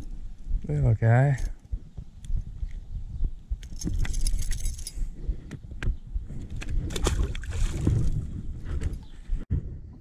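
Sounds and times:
water sloshing and splashing: 6.8s - 8.3s.

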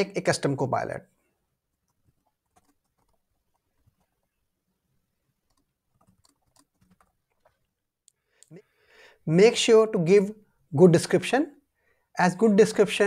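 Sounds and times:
typing on a keyboard: 1.8s - 4.1s, 5.4s - 7.5s.

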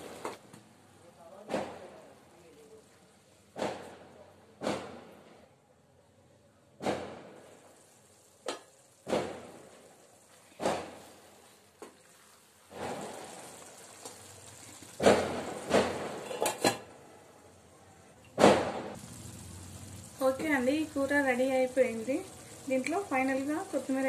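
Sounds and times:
wooden spatula stirring curry: 10.3s - 15.0s
steel lid clanking: 15.0s - 16.9s.

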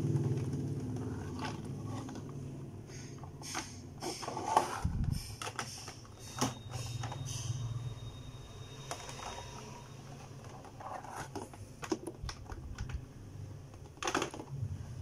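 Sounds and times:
plastic clicks and knocks: 11.1s - 13.0s, 13.7s - 14.5s.

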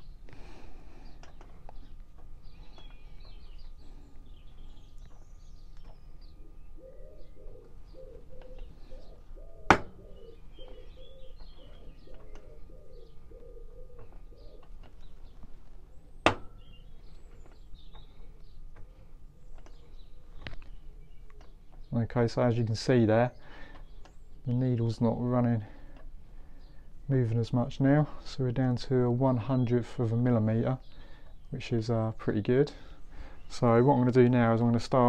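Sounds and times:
birds chirping: 0.0s - 35.0s
pigeon cooing: 6.2s - 15.0s.

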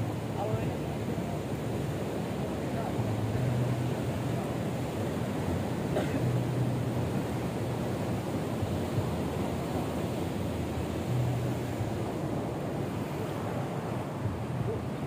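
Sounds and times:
ocean surf washing ashore: 0.0s - 15.0s.

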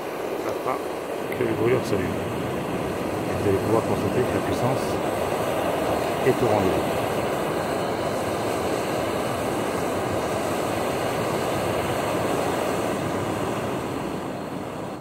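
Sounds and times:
stove burner flame rushing: 0.0s - 15.0s.

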